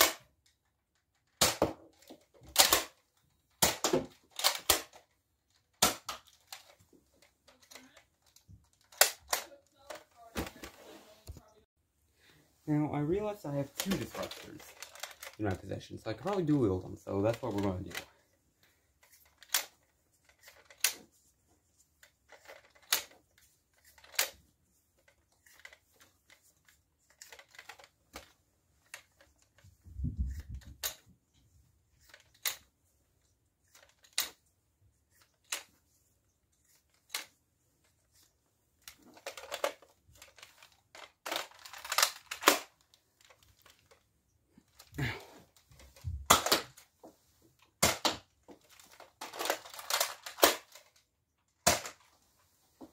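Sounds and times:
plastic toy blaster clicks and clacks: 0:00.0 - 0:10.3, 0:13.7 - 0:21.1, 0:22.0 - 0:31.1, 0:32.0 - 0:32.8, 0:33.6 - 0:34.4, 0:35.1 - 0:35.8, 0:36.6 - 0:37.4, 0:38.1 - 0:44.0, 0:45.8 - 0:46.9, 0:47.6 - 0:52.1.

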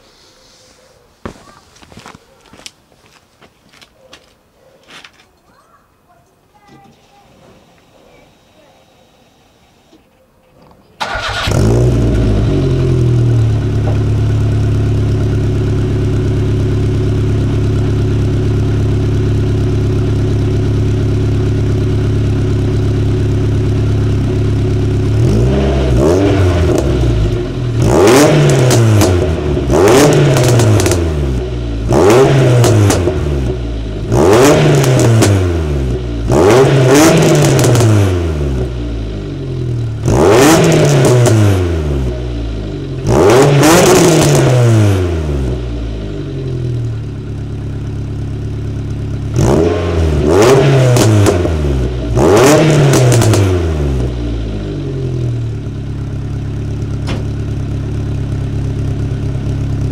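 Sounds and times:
car engine idling and revving: 0:11.0 - 0:59.9.

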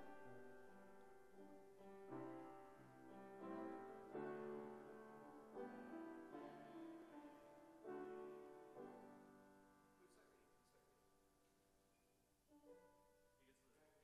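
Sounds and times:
slow piano chords: 0:00.0 - 0:10.8.

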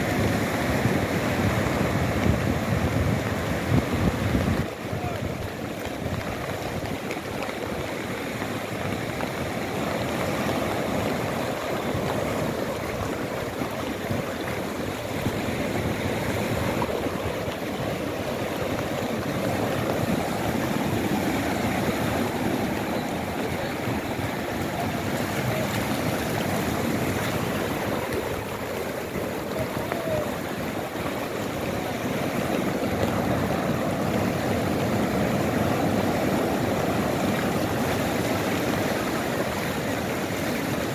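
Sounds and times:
waves breaking on beach: 0:00.0 - 0:40.9.

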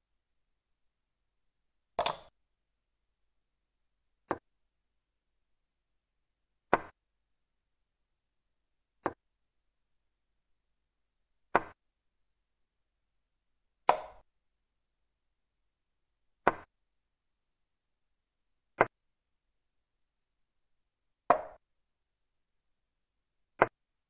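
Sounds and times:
chess piece click sound effect: 0:02.0 - 0:02.3.

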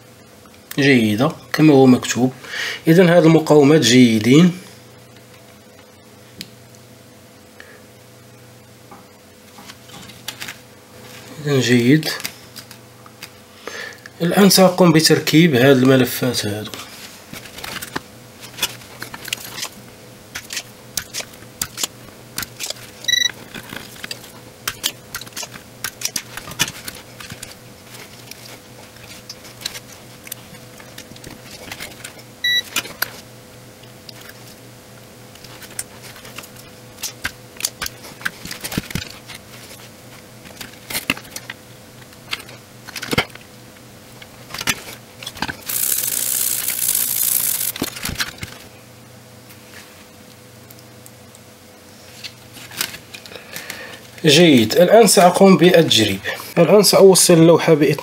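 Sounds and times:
faint steady hum: 0:00.0 - 0:58.0
short electronic beeps: 0:23.1 - 0:23.3, 0:32.4 - 0:32.7.

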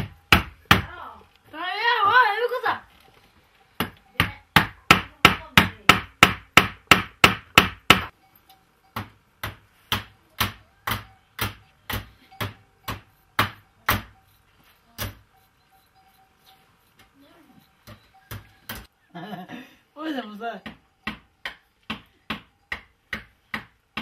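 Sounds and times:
hammer striking hard surface: 0:03.8 - 0:08.1, 0:08.9 - 0:14.2, 0:20.6 - 0:24.0.

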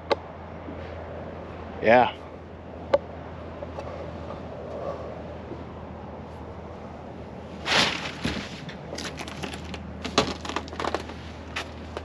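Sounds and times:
dry leaves crunching underfoot: 0:07.6 - 0:12.0.

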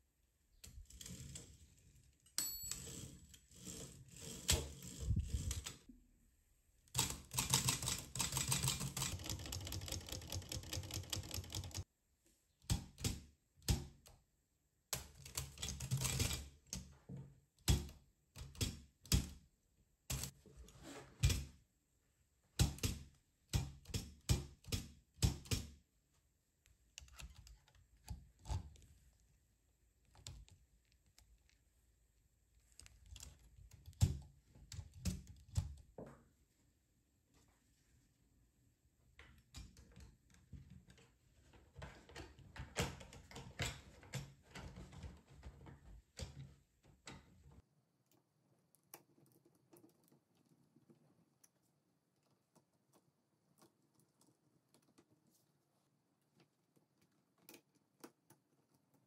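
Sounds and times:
manual typewriter clattering: 0:07.0 - 0:11.8, 0:15.2 - 0:16.9.

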